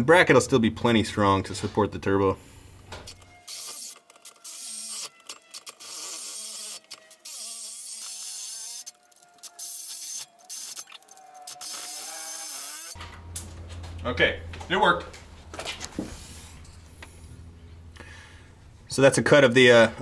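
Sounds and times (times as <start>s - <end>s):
reciprocating saw cutting metal: 3.1s - 13.0s.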